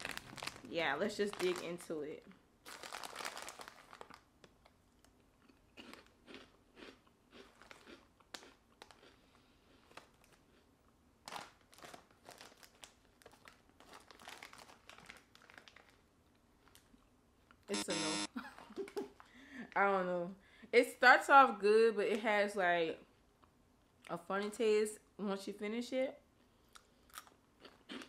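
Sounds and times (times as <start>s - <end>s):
person chewing crunchy food: 5.0s - 10.7s, 26.6s - 28.0s.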